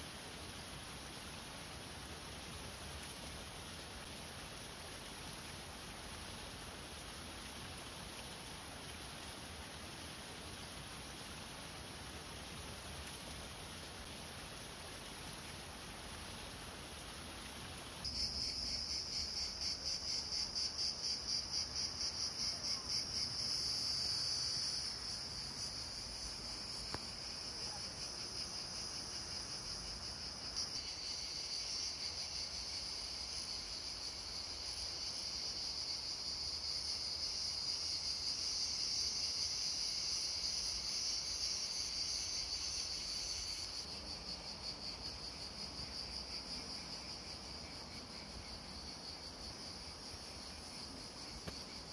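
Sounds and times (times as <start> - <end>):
insects trilling: 0.0 - 51.9.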